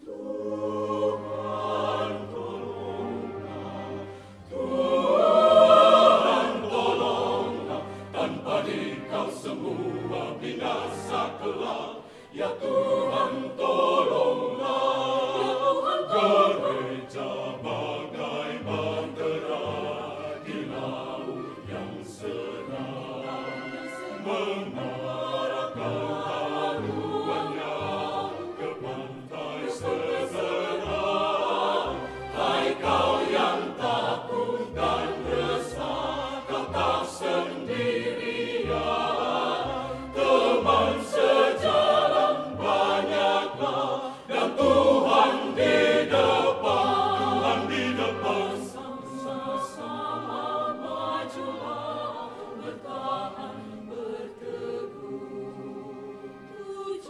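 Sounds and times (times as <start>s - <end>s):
mixed choir singing: 0.0s - 57.0s.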